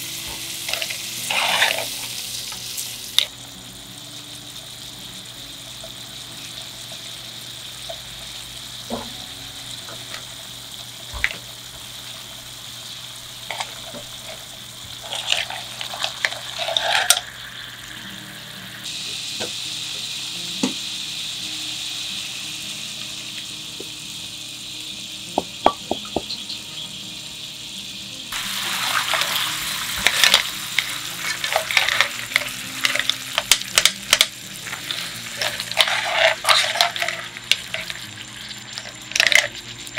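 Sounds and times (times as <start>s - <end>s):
seafood simmering in frying pan: 0.0s - 25.4s, 27.4s - 39.9s
spatula scraping pan: 0.7s - 2.1s, 15.0s - 17.2s, 28.7s - 33.8s, 34.6s - 38.0s.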